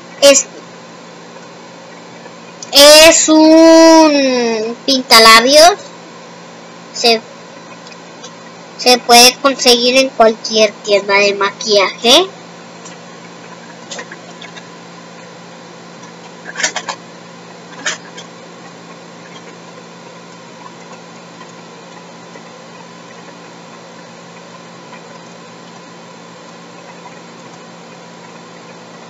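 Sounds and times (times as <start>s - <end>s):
electrical hum: 0.0s - 29.0s.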